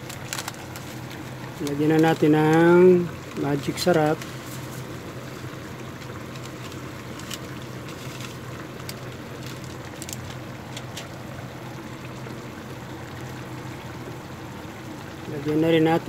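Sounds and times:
liquid simmering with pops: 0.0s - 15.6s
steady low hum: 0.0s - 16.0s.

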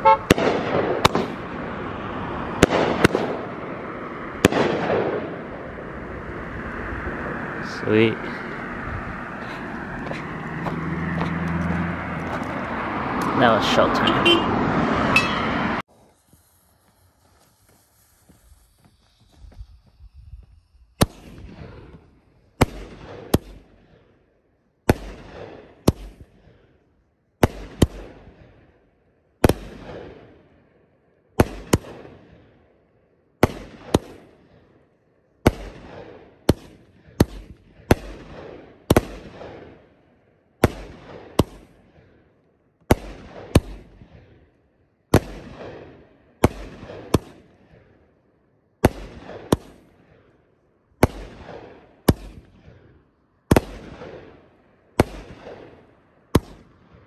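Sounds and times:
firework bangs: 0.0s - 5.9s, 15.2s - 24.1s, 24.8s - 26.6s, 35.4s - 39.9s, 42.9s - 44.4s, 45.1s - 48.0s, 48.8s - 50.3s, 51.0s - 57.0s.

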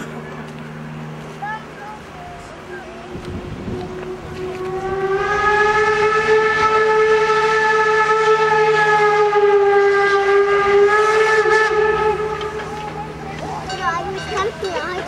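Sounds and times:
train whistle long blast: 3.6s - 13.0s.

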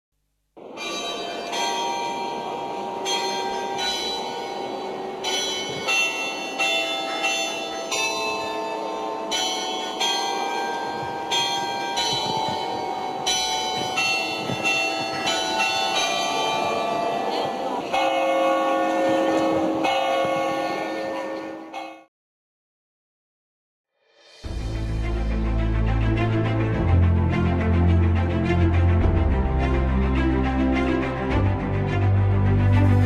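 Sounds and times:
church bells ringing: 0.6s - 22.1s.

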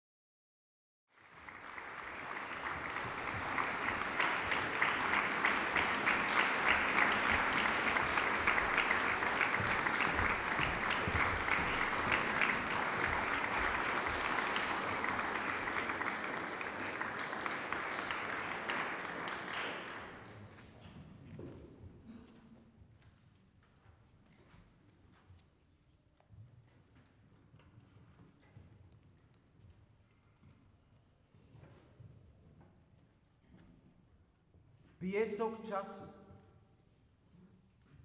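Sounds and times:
audience applauding: 1.1s - 20.6s.

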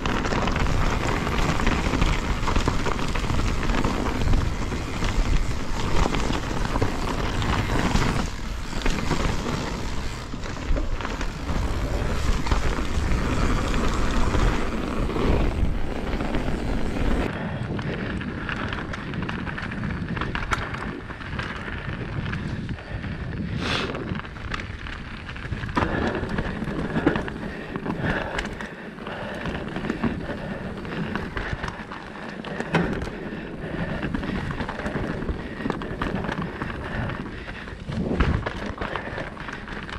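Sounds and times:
wind rushing over microphone: 0.0s - 31.6s
bike rattling and knocking: 0.0s - 39.9s
tyres rolling on dirt: 0.0s - 39.9s.

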